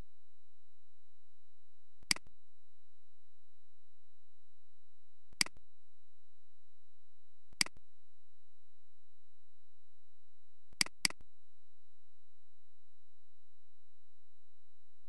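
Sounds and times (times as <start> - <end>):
faint high-pitched whine: 0.0 - 15.0
mouse clicks: 5.4 - 5.6, 7.6 - 7.8, 10.8 - 11.2.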